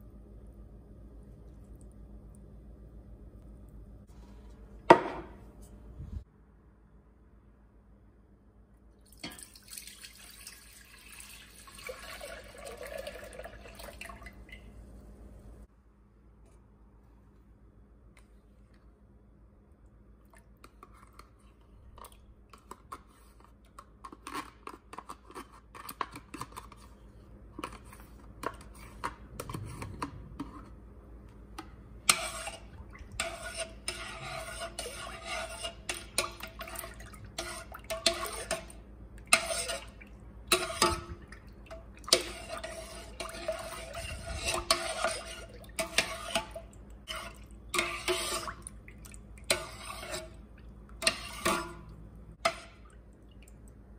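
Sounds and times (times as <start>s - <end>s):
spoon stirring in metal pot: 20.6s - 27.0s, 27.6s - 53.1s
spoon scraping plastic tub: 20.7s - 27.0s, 27.6s - 30.8s, 31.6s - 41.2s, 42.1s - 48.6s, 49.5s - 50.4s, 51.0s - 52.6s.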